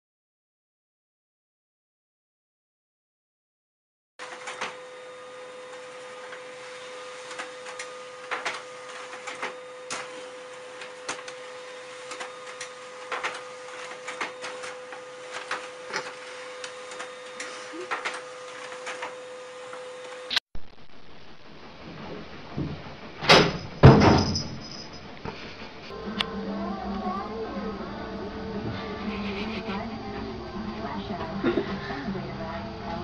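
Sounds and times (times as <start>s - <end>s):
printer whine and hum: 4.2s - 20.3s.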